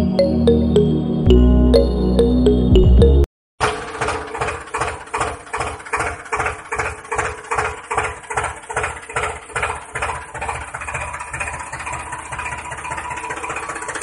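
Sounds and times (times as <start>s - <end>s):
tractor engine idling: 3.6s - 14.0s.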